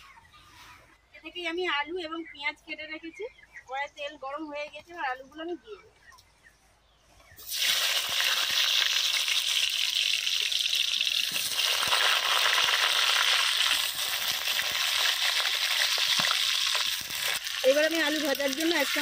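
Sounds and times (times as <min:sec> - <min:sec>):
fine crackling of oil: 0:07.4 - 0:19.0
potatoes sizzling in hot oil: 0:07.4 - 0:19.0.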